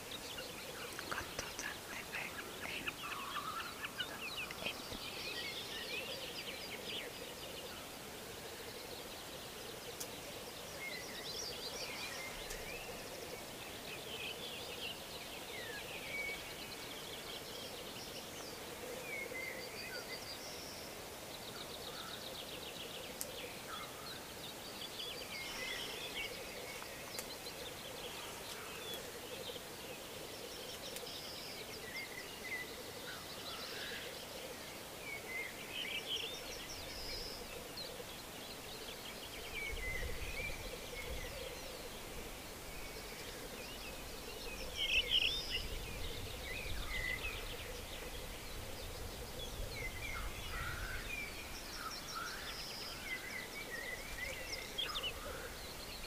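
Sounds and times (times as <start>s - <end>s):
birds chirping and trilling: 0.0s - 56.0s.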